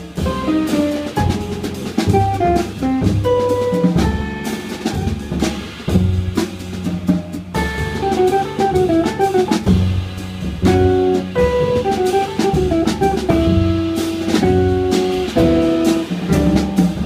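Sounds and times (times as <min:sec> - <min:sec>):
drum kit with cymbals: 0:00.0 - 0:17.0
plucked double bass: 0:00.0 - 0:17.0
electric guitar picking melody: 0:08.0 - 0:09.6, 0:10.7 - 0:17.0.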